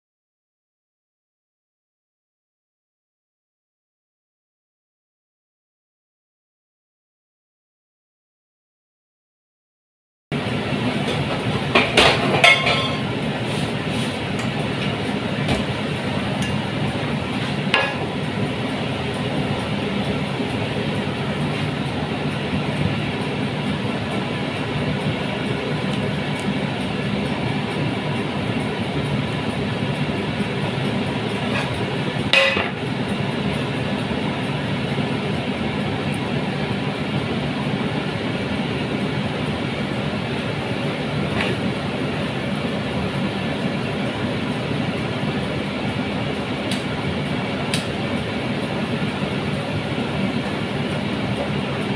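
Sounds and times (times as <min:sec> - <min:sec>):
metal cookware clinking: 0:12.2 - 0:13.1, 0:17.8 - 0:18.1, 0:32.3 - 0:32.8.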